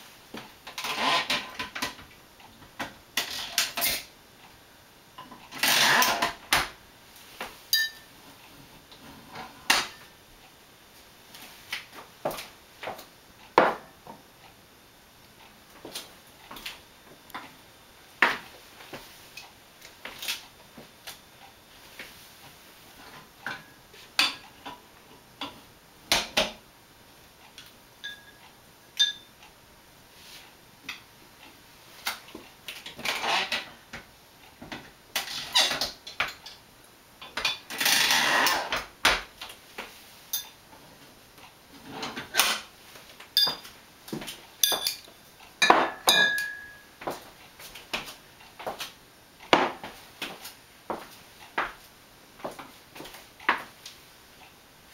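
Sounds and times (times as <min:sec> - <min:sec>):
glass bottles clinking: 0:07.8 - 0:08.1, 0:43.4 - 0:43.7, 0:44.6 - 0:46.8.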